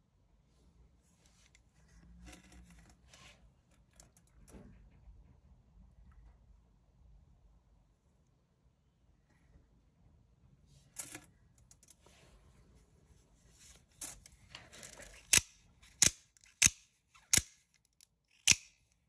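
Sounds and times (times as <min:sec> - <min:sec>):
knife blade snapping out and back: 0:18.4 - 0:18.8.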